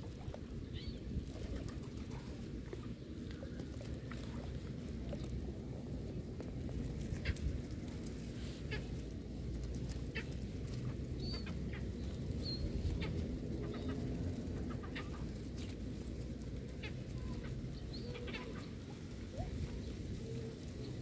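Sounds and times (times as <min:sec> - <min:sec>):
birds calling: 0:00.0 - 0:04.5, 0:09.9 - 0:21.0.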